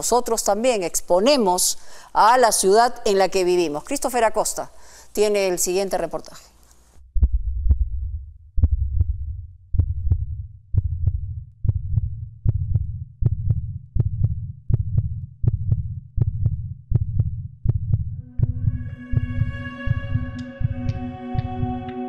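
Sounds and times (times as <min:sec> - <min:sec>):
heartbeat thuds with clicks: 0:07.0 - 0:21.8.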